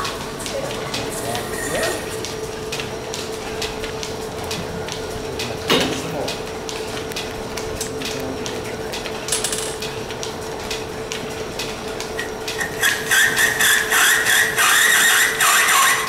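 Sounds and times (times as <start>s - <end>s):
lathe humming: 0.0s - 16.0s
regular ticking: 2.1s - 16.0s
lathe tool scraping metal: 12.6s - 16.0s.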